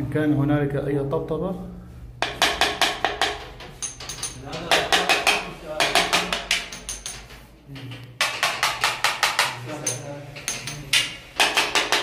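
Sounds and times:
metal tube tapping ceramic tiles: 2.2 - 7.3, 8.2 - 12.0.

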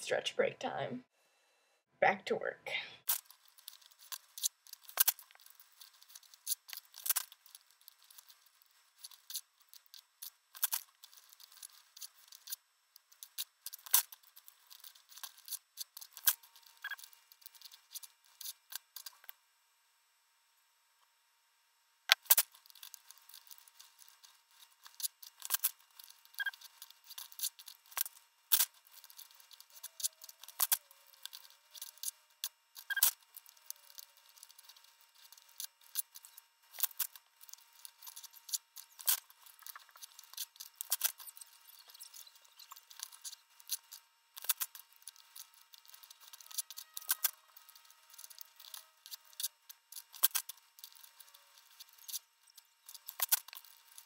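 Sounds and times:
paper rustling: 3.1 - 12.6.

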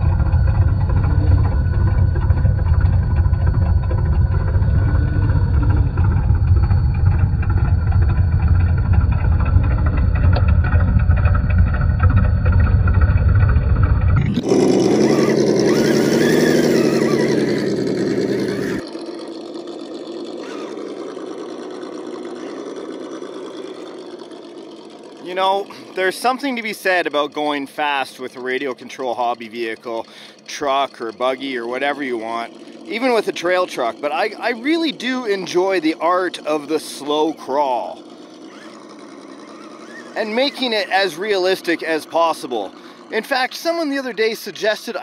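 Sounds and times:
deep muffled rumble: 0.0 - 15.8
toy truck engine revving: 0.0 - 45.0.

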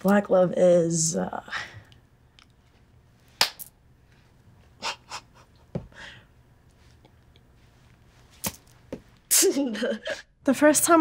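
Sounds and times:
woman breathing: 4.8 - 6.4.

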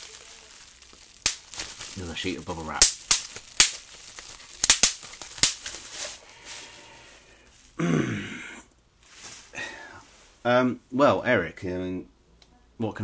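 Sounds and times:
bubble wrap popping: 0.0 - 6.7
bubble wrap rustling: 0.0 - 7.8, 9.0 - 10.4.

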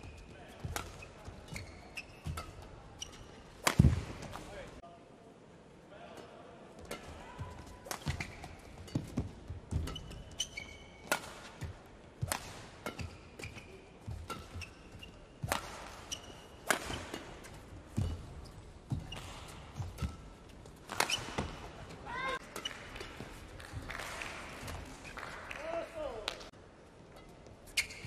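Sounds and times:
shoe squeaks: 0.0 - 3.4, 8.0 - 11.1, 13.0 - 15.4, 16.0 - 16.6, 27.7 - 28.0
rackets hitting shuttlecock: 0.0 - 4.6, 6.8 - 25.3.

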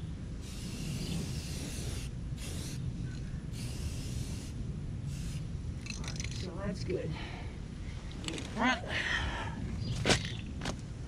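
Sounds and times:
steady low rumble: 0.0 - 11.0
aerosol spray can hissing: 0.4 - 2.8, 3.6 - 5.4.

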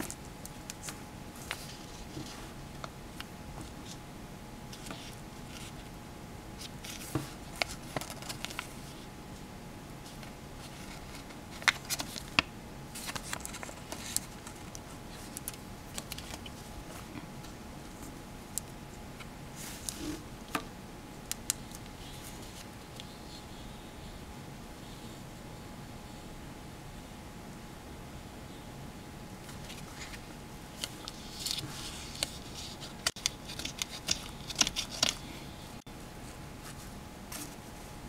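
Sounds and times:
paper and clips handled: 10.2 - 17.1, 29.5 - 35.3
faint steady tone: 12.5 - 31.2.

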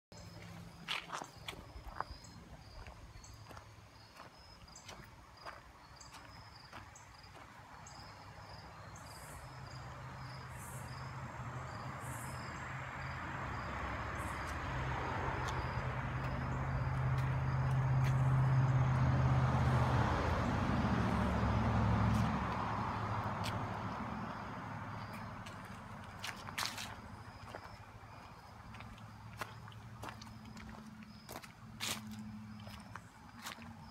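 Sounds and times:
insects chirping: 0.1 - 33.9
vehicle passing: 7.3 - 33.9.

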